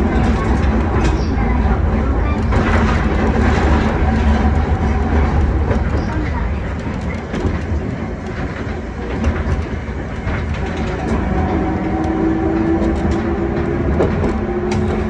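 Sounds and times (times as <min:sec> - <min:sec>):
tram rumbling on rails: 0:00.0 - 0:15.0.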